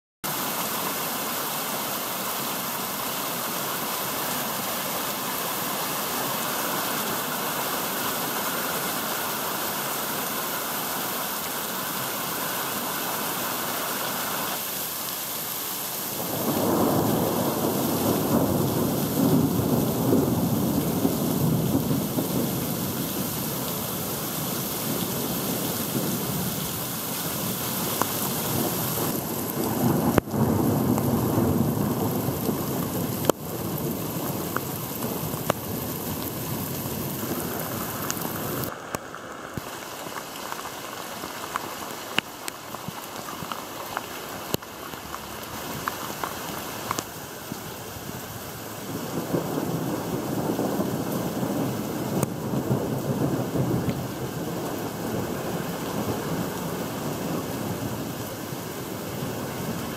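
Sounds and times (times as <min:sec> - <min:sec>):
streaming water: 0:00.2 - 0:17.0, 0:21.4 - 0:30.4, 0:32.7 - 0:49.0
heavy rain on paving: 0:00.2 - 0:59.9
thunder rumbling: 0:16.2 - 0:38.7, 0:48.1 - 0:59.9.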